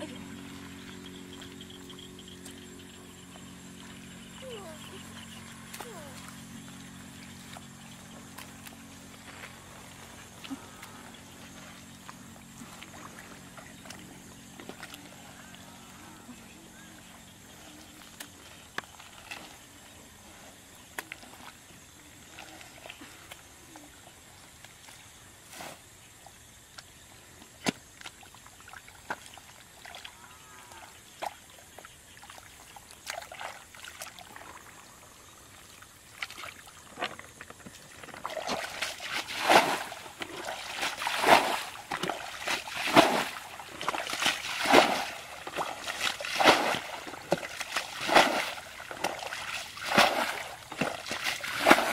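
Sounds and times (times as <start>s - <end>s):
hands squelching in muddy water: 4.4s - 16.0s, 31.1s - 51.9s
bucket throwing water splashes: 36.1s - 51.9s.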